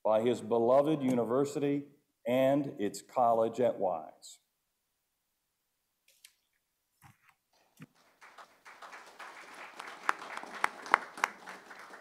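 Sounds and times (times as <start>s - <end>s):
people clapping: 7.8s - 12.0s.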